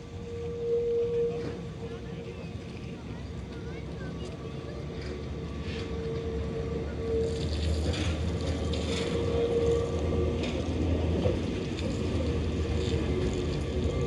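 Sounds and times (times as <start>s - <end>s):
tram rumbling on rails: 0.0s - 14.0s
rattling clicks from tram wheels: 1.4s - 14.0s.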